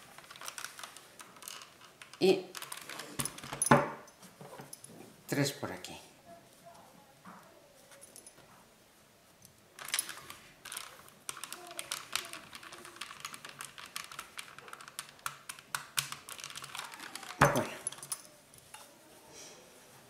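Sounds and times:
quick clicking and crackling: 0:09.8 - 0:18.2.

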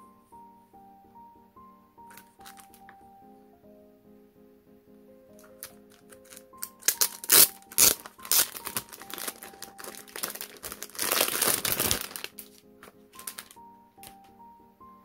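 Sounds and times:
soft piano music: 0:00.0 - 0:15.0
packaging crinkling: 0:02.1 - 0:02.9, 0:05.4 - 0:13.6.

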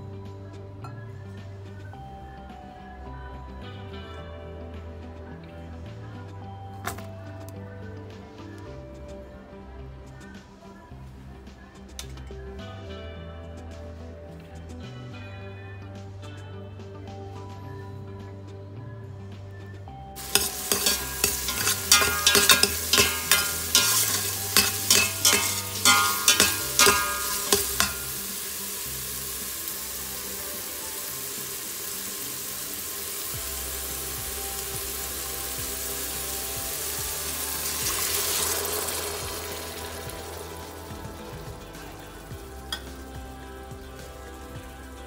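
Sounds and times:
metal spoon scraping a steel pot: 0:20.2 - 0:28.2
peppers sizzling: 0:20.2 - 0:45.0.

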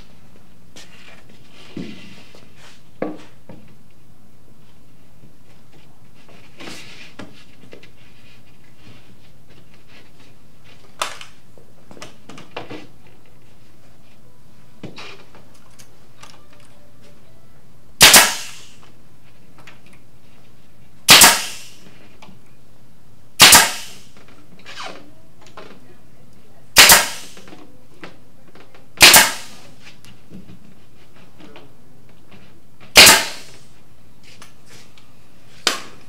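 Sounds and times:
pneumatic staple gun firing: 0:18.0 - 0:18.8, 0:21.1 - 0:21.8, 0:23.4 - 0:24.2, 0:26.8 - 0:27.5, 0:29.0 - 0:29.6, 0:32.9 - 0:33.7.

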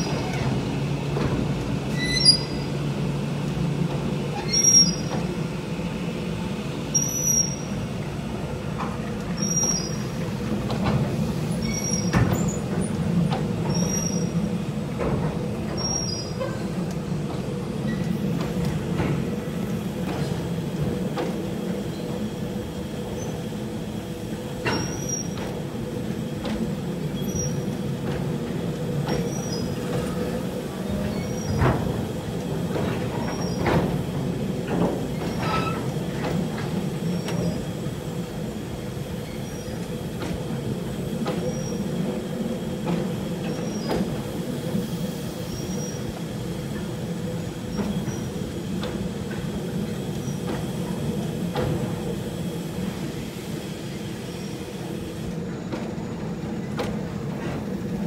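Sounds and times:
train wheels squealing: 0:01.9 - 0:02.8, 0:04.3 - 0:05.2, 0:06.9 - 0:07.8, 0:09.4 - 0:10.2, 0:11.6 - 0:12.7, 0:13.6 - 0:14.4, 0:15.8 - 0:16.6, 0:17.9 - 0:18.1, 0:24.7 - 0:25.4, 0:27.1 - 0:27.7, 0:29.3 - 0:29.8, 0:30.9 - 0:31.6, 0:33.1 - 0:33.7, 0:35.1 - 0:36.1, 0:39.2 - 0:39.8, 0:43.4 - 0:44.0, 0:45.3 - 0:46.1.

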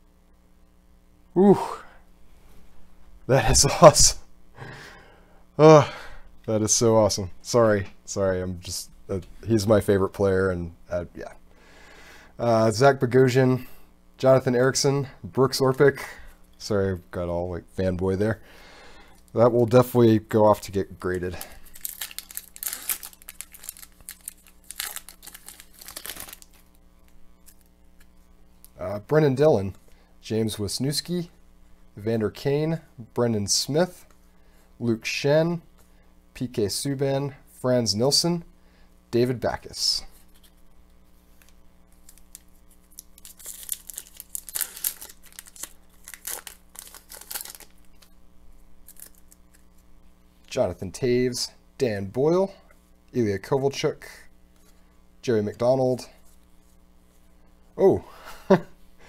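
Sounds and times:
foil wrapper crinkling and tearing: 0:21.0 - 0:26.8, 0:41.4 - 0:48.1, 0:48.8 - 0:49.8.

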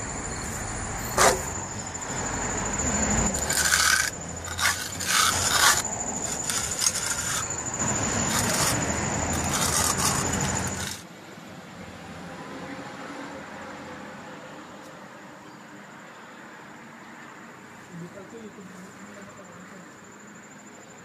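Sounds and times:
trowel scraping wet cement: 0:03.1 - 0:11.0.

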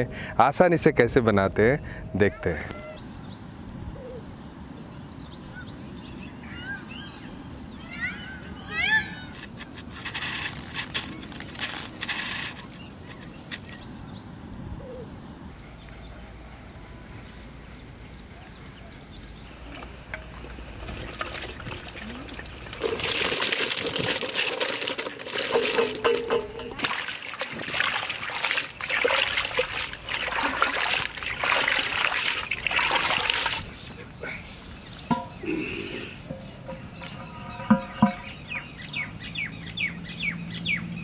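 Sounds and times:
vegetables splashing into water: 0:21.1 - 0:33.7
bird chirps: 0:34.8 - 0:41.0.

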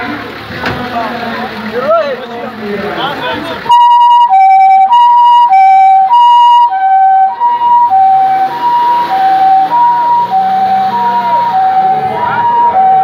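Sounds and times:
vehicle engine: 0:00.0 - 0:13.0
two-tone ambulance siren: 0:03.6 - 0:13.0.

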